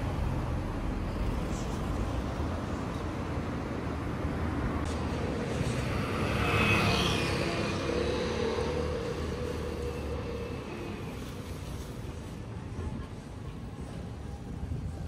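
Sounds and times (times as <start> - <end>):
traffic rumble: 0.0 - 15.0
vehicle passing with thin whine: 5.0 - 11.4.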